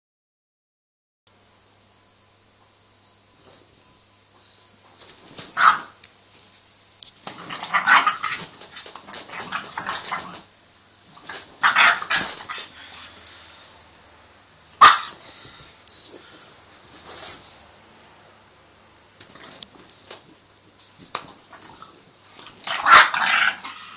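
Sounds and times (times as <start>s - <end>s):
puppy barking: 5.6s - 6.0s, 7.5s - 8.5s, 11.6s - 12.7s, 14.8s - 15.2s, 22.6s - 23.9s.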